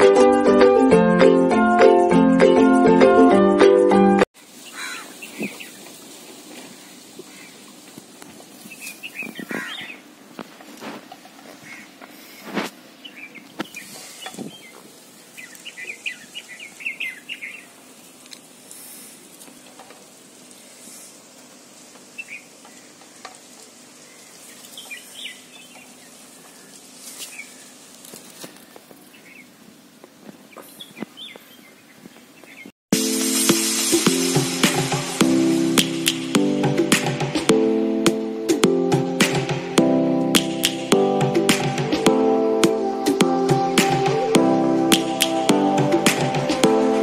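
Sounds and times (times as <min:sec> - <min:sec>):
faint outdoor background: 0:00.0 - 0:47.0
small birds chirping: 0:04.4 - 0:10.2, 0:11.2 - 0:34.5.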